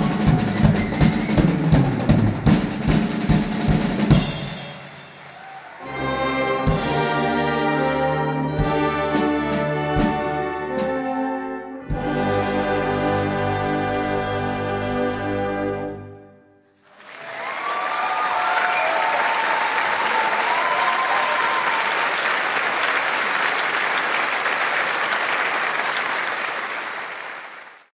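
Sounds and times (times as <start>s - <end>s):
audience applause: 5.0s - 6.3s, 16.8s - 27.9s
crowd calls: 16.9s - 26.2s.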